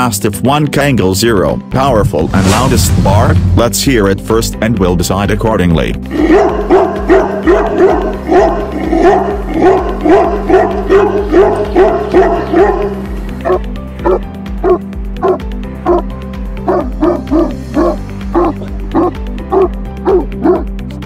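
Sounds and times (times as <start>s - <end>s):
background music: 0.0s - 21.0s
dog barking deeply: 6.1s - 16.0s, 16.6s - 20.7s.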